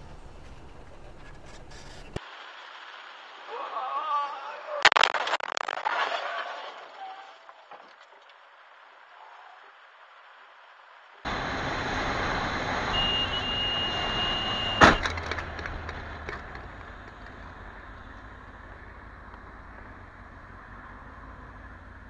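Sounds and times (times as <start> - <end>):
motorcycle engine and wind: 11.3 - 22.0.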